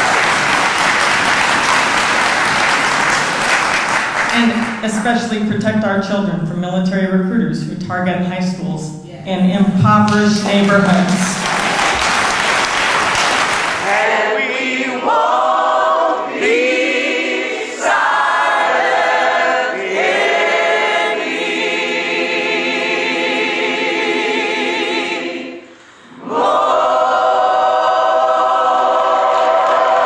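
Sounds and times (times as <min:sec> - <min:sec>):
group singing unaccompanied: 0:11.4 - 0:30.0.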